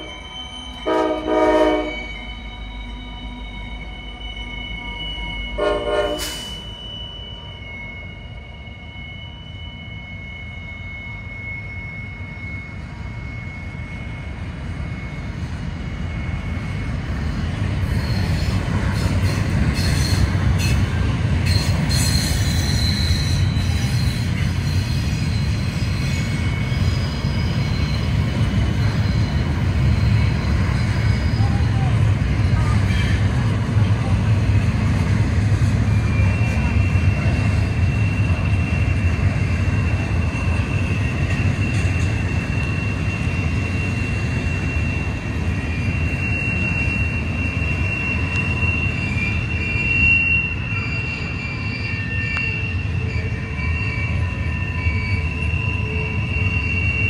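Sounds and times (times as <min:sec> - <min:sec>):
diesel locomotive rumble: 0:00.0 - 0:04.5, 0:12.7 - 0:54.6
train wheels squealing on rails: 0:00.0 - 0:57.0
train horn blast: 0:00.8 - 0:02.2, 0:05.6 - 0:06.5.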